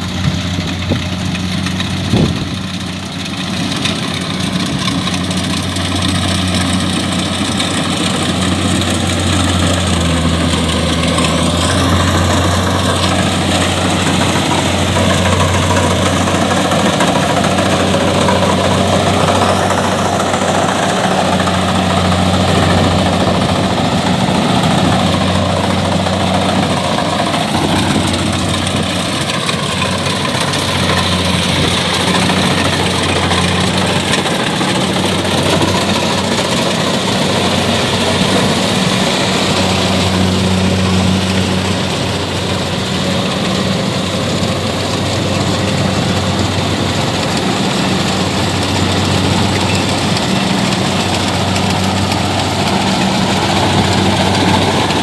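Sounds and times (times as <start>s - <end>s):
diesel engine drone: 0.0s - 55.0s
threshing machinery clatter: 0.0s - 55.0s.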